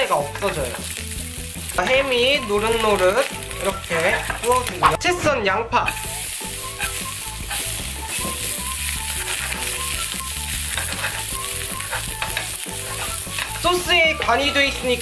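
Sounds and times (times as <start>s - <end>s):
onion sizzling in frying pan: 0.0s - 15.0s
spatula stirring in pan: 5.9s - 14.3s.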